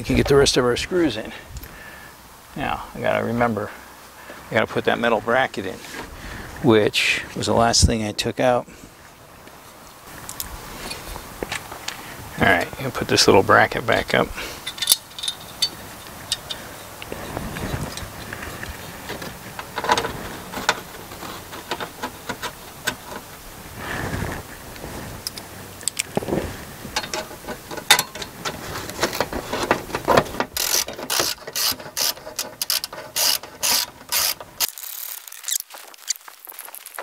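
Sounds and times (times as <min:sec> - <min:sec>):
metal bracket and wires rattling: 0:14.6 - 0:23.5, 0:25.3 - 0:37.0.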